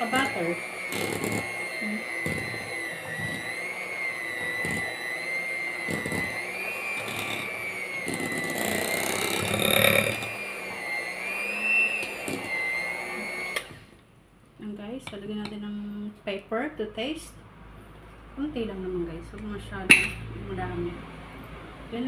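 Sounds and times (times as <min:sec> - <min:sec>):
hand mixer motor whine: 0:00.0 - 0:14.0.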